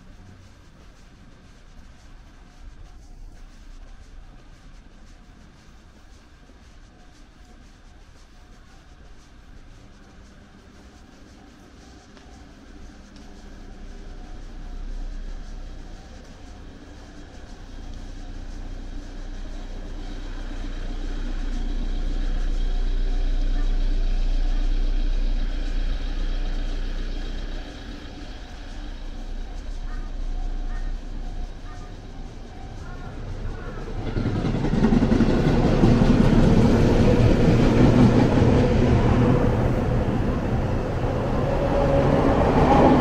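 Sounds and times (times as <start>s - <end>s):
large vehicle engine rumble: 13.3s - 34.3s, 34.9s - 43.0s.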